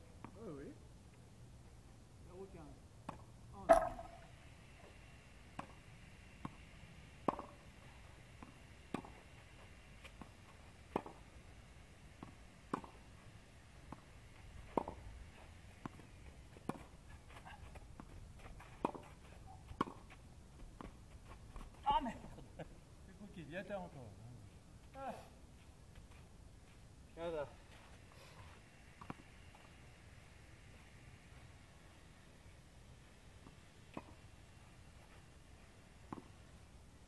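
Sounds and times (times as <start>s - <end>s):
racket striking tennis ball: 3.1s - 4.3s, 7.2s - 7.6s.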